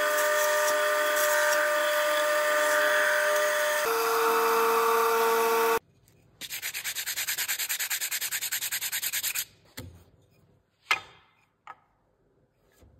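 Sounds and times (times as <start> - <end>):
bandsaw humming: 0.0 - 5.8
sanding block scrubbing wood: 6.4 - 9.4.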